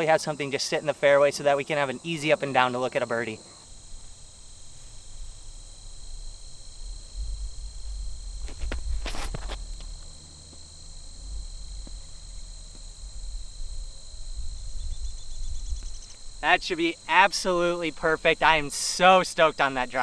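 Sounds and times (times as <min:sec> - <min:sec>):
crickets chirping: 0:00.0 - 0:20.0
footsteps scuffing on concrete: 0:08.4 - 0:13.0.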